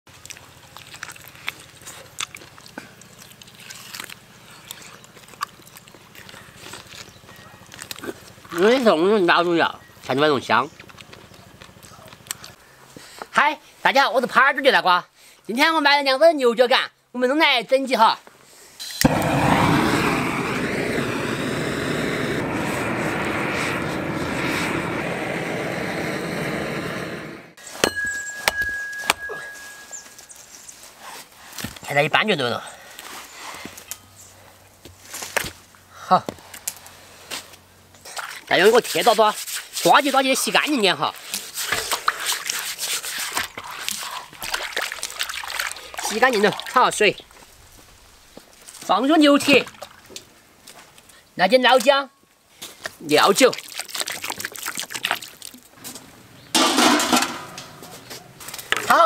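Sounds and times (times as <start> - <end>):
person chewing: 0.1 - 7.1, 53.6 - 55.6
gas torch flame burning: 18.8 - 27.6
sharp knocks and scrapes: 41.3 - 44.0, 56.6 - 58.9.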